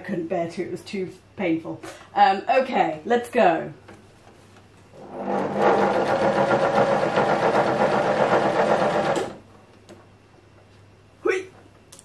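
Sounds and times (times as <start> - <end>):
sewing machine running: 5.0 - 9.4.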